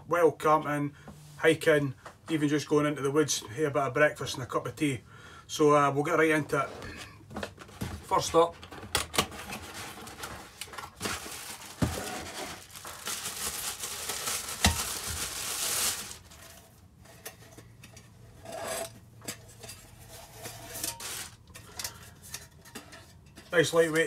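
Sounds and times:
packaging rustling: 0:09.2 - 0:16.7, 0:20.8 - 0:21.5
handling pot in mesh bag: 0:09.4 - 0:17.6, 0:19.6 - 0:22.8.

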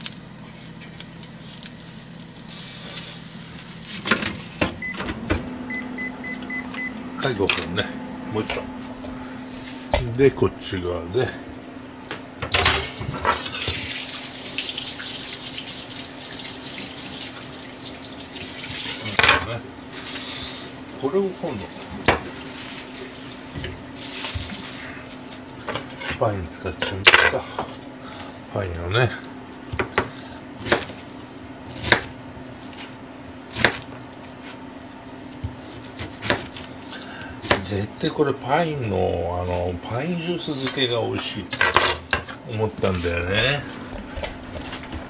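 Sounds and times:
faint steady hum: 0:00.0 - 0:45.0
tap water running into sink: 0:13.2 - 0:19.2
knife chopping on plastic board: 0:29.7 - 0:31.0, 0:31.8 - 0:32.1, 0:35.4 - 0:36.6.

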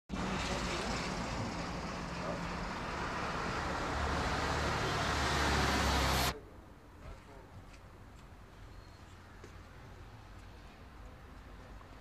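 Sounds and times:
passing vehicles rumble: 0:00.1 - 0:06.4
street traffic hiss: 0:00.1 - 0:12.0.

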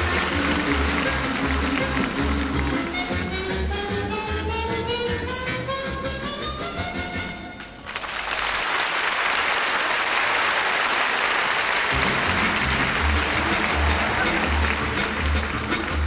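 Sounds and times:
audience applause: 0:00.0 - 0:03.1, 0:07.8 - 0:16.0
band music with low beat: 0:00.0 - 0:07.4, 0:11.9 - 0:16.0
harmonica tune: 0:00.0 - 0:07.6.

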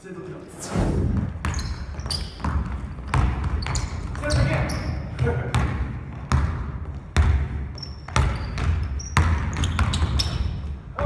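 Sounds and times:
basketball bouncing on wood floor: 0:01.2 - 0:10.6
sneaker squeaks: 0:01.4 - 0:05.2, 0:07.7 - 0:10.7.

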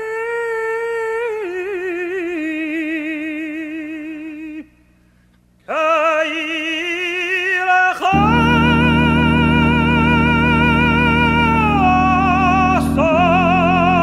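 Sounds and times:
cantor singing with vibrato: 0:05.7 - 0:14.0.

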